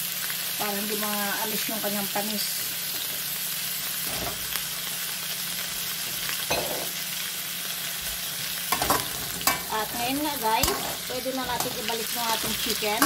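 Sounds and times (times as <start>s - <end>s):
vegetables sizzling in oil: 0.0s - 13.0s
spatula scraping a wok: 8.7s - 13.0s.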